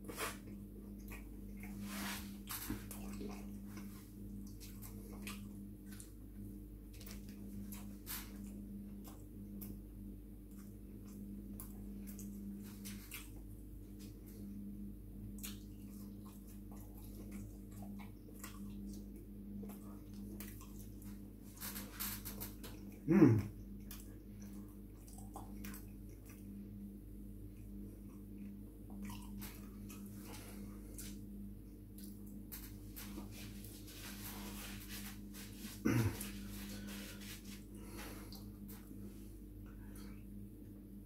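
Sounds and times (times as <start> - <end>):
chewing and lip-smacking: 0.2 - 1.8, 2.4 - 6.2, 6.9 - 9.8, 10.4 - 14.5, 15.3 - 23.0, 23.6 - 31.2, 31.9 - 33.7.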